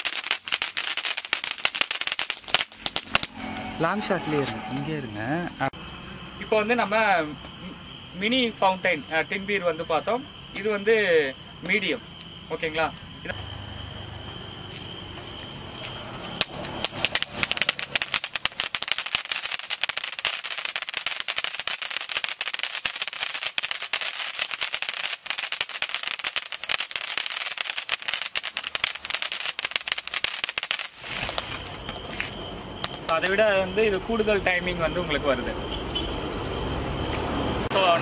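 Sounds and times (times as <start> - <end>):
firework fountain crackling: 0.0 - 4.0, 15.2 - 32.1, 32.8 - 34.0
crickets chirping: 0.0 - 38.0.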